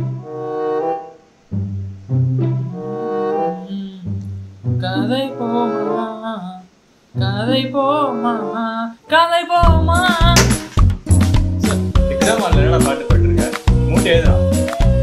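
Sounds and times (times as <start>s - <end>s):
bass notes: 0.0s - 0.3s, 1.5s - 3.0s, 9.6s - 15.0s
person singing: 3.4s - 4.2s, 4.8s - 10.6s
guitar: 9.1s - 15.0s
heavy drum beat: 9.7s - 13.3s.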